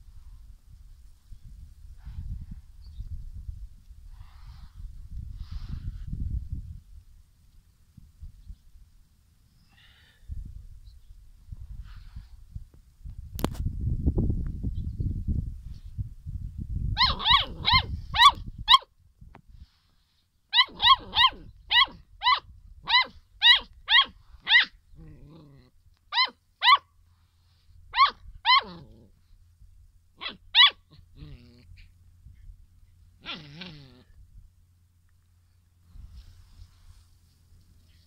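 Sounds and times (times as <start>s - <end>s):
puppy yapping: 17.0s - 18.9s, 20.6s - 24.8s, 26.1s - 26.9s, 27.9s - 29.0s, 30.2s - 31.9s, 33.2s - 34.0s.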